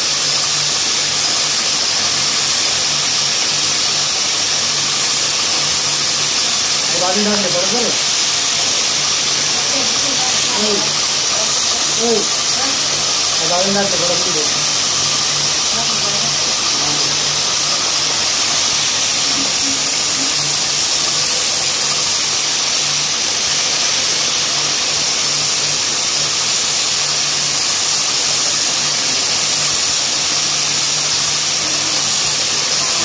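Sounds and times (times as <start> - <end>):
low machine hum: 0.0 - 26.4
machine hissing: 0.0 - 33.0.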